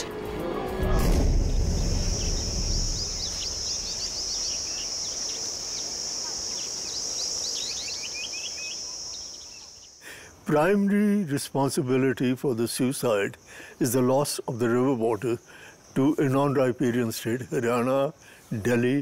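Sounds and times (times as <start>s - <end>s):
low rumble: 0.1s - 5.9s
insect drone: 0.2s - 10.5s, 11.7s - 19.0s
birds chirping: 1.3s - 11.0s.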